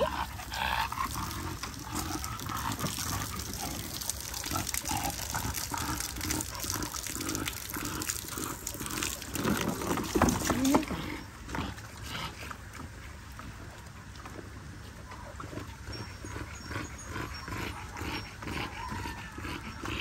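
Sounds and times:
water trickling and splashing: 0.0 - 19.9.

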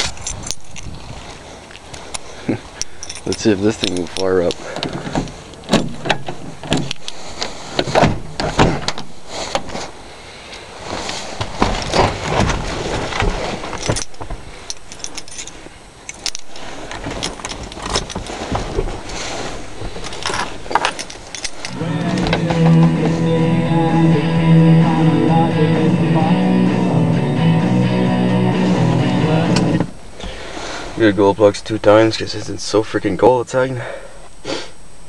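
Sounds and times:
person getting into cab rustling: 0.0 - 32.8
keys jangling in lock: 2.8 - 4.6, 13.8 - 16.6, 20.0 - 21.8
car door opening: 21.7 - 23.3.

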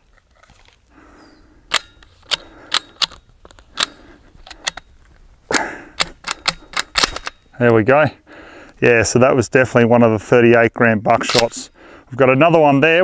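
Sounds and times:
shotgun bolt metallic clacks: 1.7 - 4.9, 5.5 - 7.8, 11.2 - 11.7
shotgun bolt rattle: 1.7 - 4.9, 5.5 - 7.5, 11.2 - 11.7.

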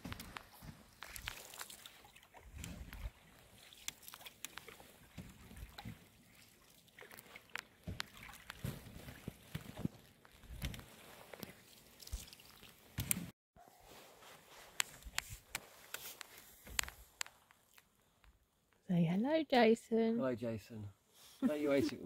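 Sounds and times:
water dripping: 0.1 - 8.7
paddle strokes sloshing: 0.4 - 13.0.

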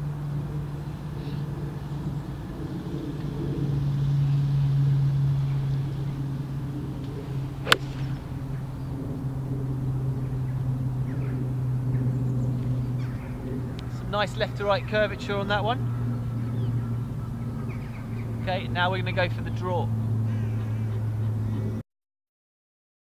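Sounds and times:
low mechanical hum: 0.0 - 21.8
golf club striking ball: 6.8 - 10.4.

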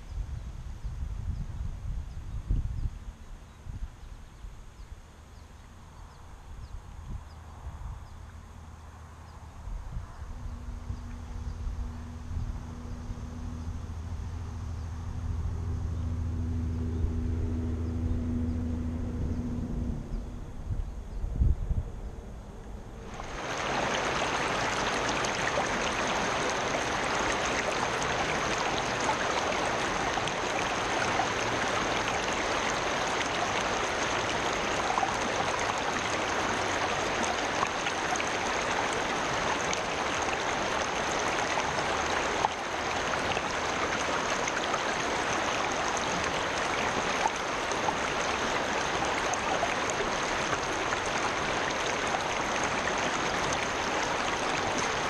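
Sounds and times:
creek running over stones: 23.0 - 55.0.

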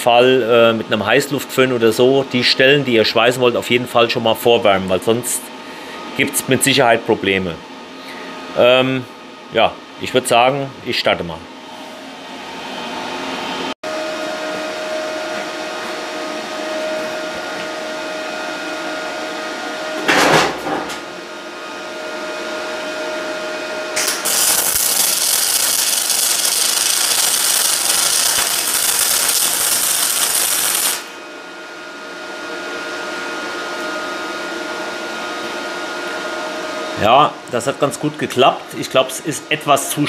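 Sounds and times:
welder humming: 21.5 - 39.6
loud burst: 24.0 - 31.1
welding arc hissing: 24.0 - 31.2.

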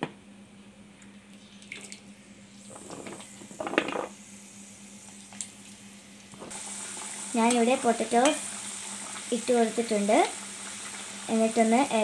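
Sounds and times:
oil sizzling: 2.4 - 12.0.

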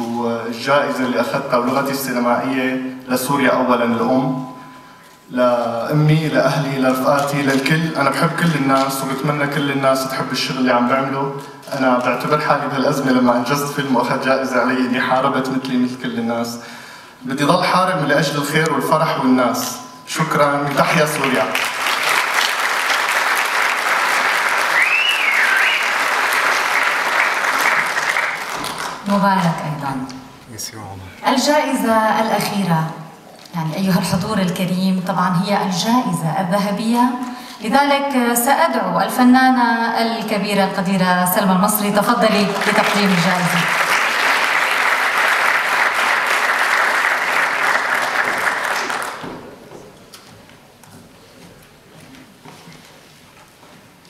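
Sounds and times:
audience applauding: 20.7 - 29.5, 42.2 - 49.5
wavering whistle from crowd: 24.6 - 26.2.

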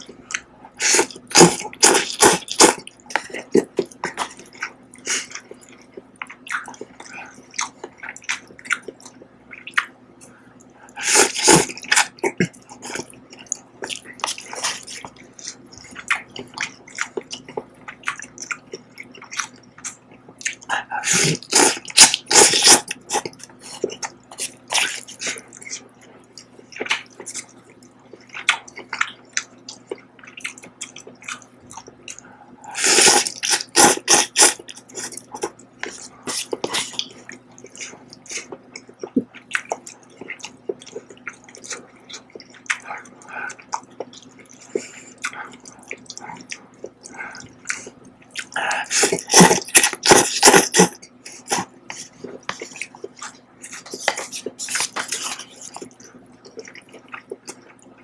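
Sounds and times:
wet mouth clicks and chewing: 0.0 - 58.0
person slurping noodles: 0.8 - 2.8, 11.0 - 12.1, 32.7 - 35.1, 48.6 - 52.0.

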